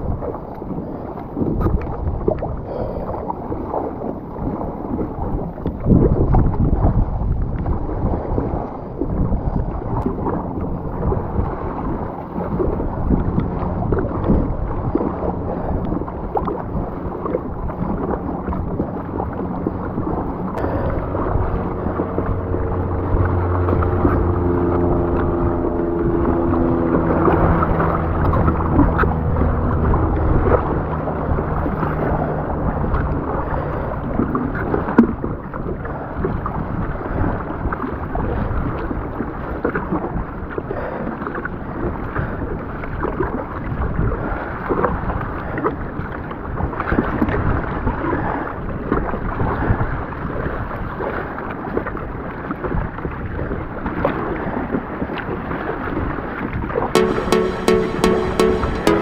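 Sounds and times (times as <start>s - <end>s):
wind buffeting the microphone: 0.0s - 56.8s
low steady hum: 10.0s - 34.5s.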